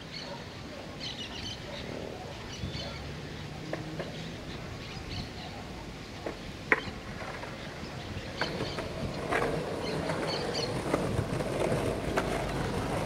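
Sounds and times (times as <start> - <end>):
faint birds chirping: 0.0 - 13.0
outdoor background noise: 0.0 - 13.0
skateboard clacking on concrete: 6.2 - 13.0.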